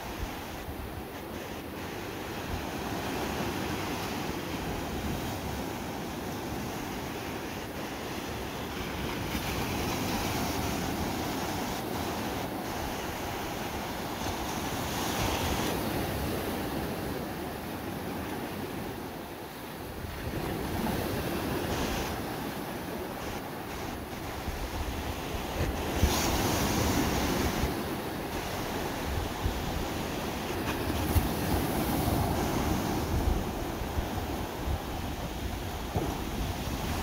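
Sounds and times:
waves breaking on sandy beach: 0:00.0 - 0:37.0.

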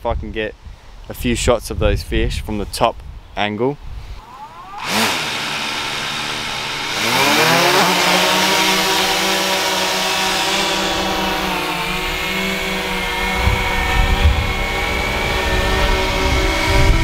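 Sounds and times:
drone propellers whining: 0:04.0 - 0:17.0.

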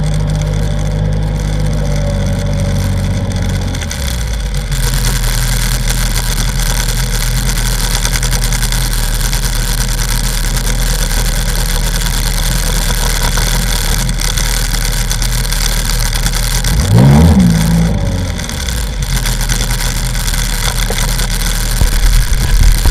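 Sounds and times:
jet ski engine idling: 0:00.0 - 0:22.9.

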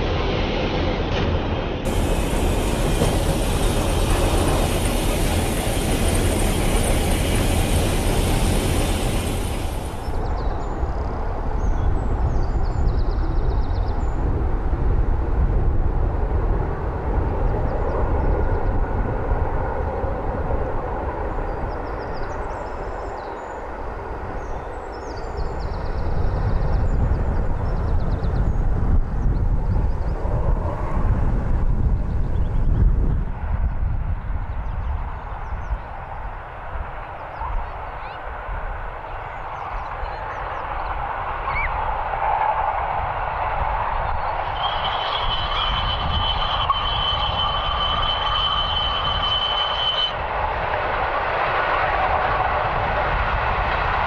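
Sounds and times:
train wheels on rails: 0:00.9 - 0:10.3, 0:38.7 - 0:54.0
high hiss: 0:01.9 - 0:10.1
steam locomotive exhaust: 0:01.9 - 0:10.1, 0:43.4 - 0:54.0.

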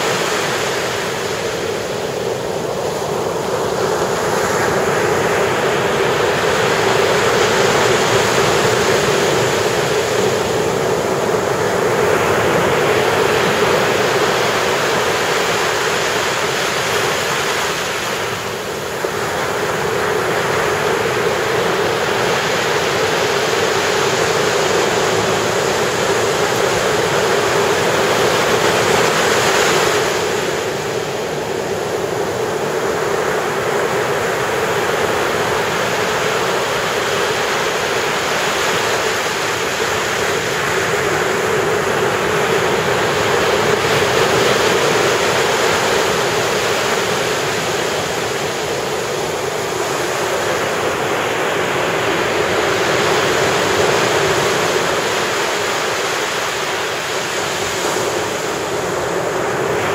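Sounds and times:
ocean waves breaking on beach: 0:00.0 - 0:59.9.

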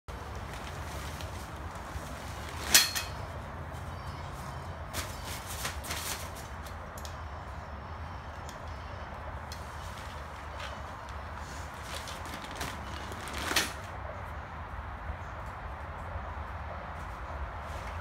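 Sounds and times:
tent dragged across concrete: 0:00.1 - 0:06.8, 0:09.5 - 0:14.0
low background hum: 0:00.1 - 0:18.0.

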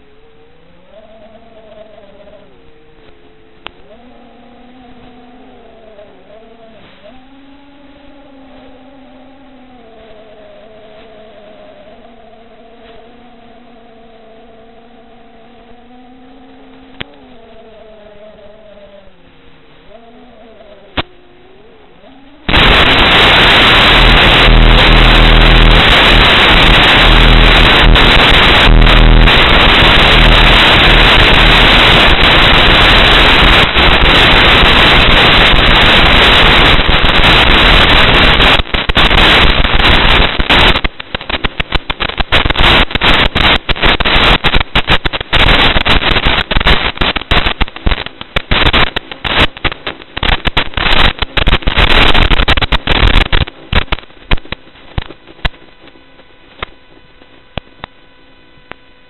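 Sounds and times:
faint hum: 0:00.0 - 0:59.0
loud static hiss: 0:00.0 - 0:59.0
crackling pops: 0:20.9 - 0:21.1, 0:22.4 - 0:58.0
steady tones: 0:21.9 - 0:51.9.

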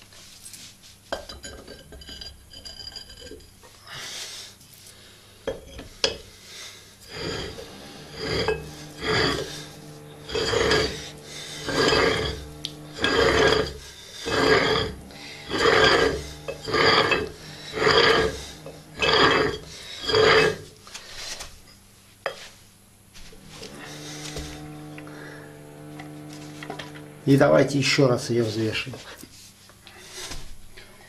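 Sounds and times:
metal-on-metal rasp of twisting: 0:07.1 - 0:20.7.

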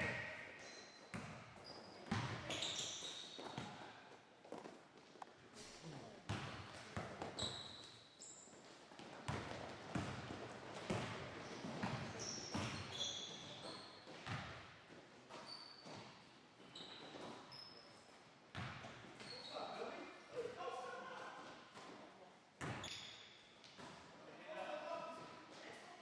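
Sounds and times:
sneakers squeaking on wood: 0:00.6 - 0:03.8, 0:07.2 - 0:08.7, 0:11.5 - 0:14.4, 0:15.3 - 0:17.9, 0:19.2 - 0:19.8, 0:22.6 - 0:23.4.

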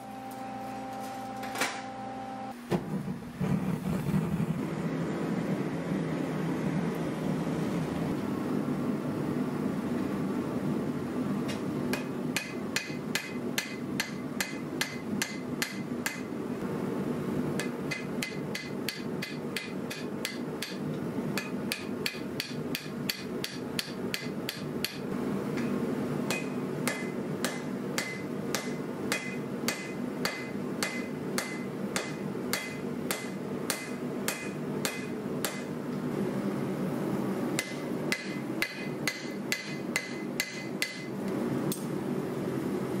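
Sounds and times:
forge burner roaring: 0:01.9 - 0:43.0
hammer ringing on anvil: 0:26.3 - 0:35.7, 0:37.6 - 0:41.1.

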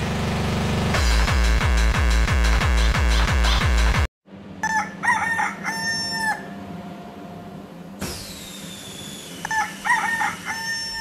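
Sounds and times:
electronic dance music: 0:00.9 - 0:04.1
rooster crowing: 0:04.6 - 0:06.6, 0:09.5 - 0:11.0.

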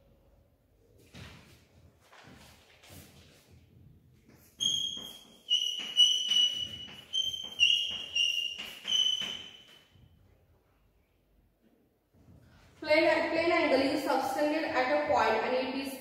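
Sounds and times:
chalk squeaking on a blackboard: 0:04.3 - 0:10.0.

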